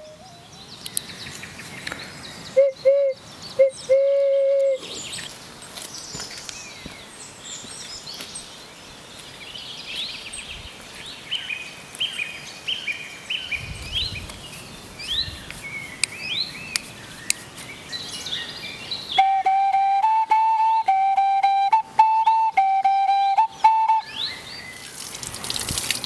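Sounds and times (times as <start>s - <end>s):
songbirds chirping: 0.0s - 25.9s
wooden flute playing held notes: 2.6s - 4.8s, 19.2s - 24.4s.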